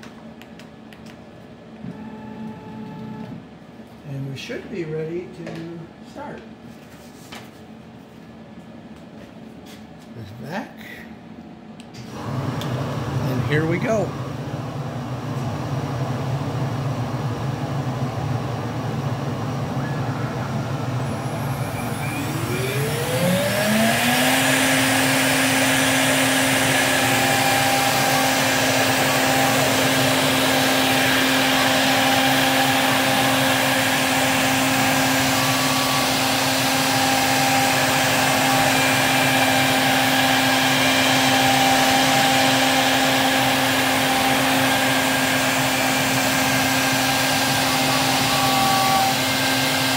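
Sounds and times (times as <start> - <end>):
mechanical hum: 0.0 - 49.9
router spindle whining: 19.5 - 49.9.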